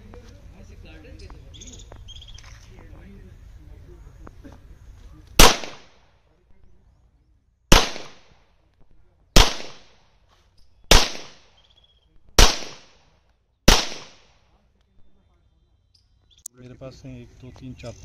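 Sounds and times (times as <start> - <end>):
pistol shots with echo: 5.4 - 6.0, 7.7 - 8.5, 9.4 - 10.0, 10.9 - 11.7, 12.4 - 13.1, 13.7 - 14.4.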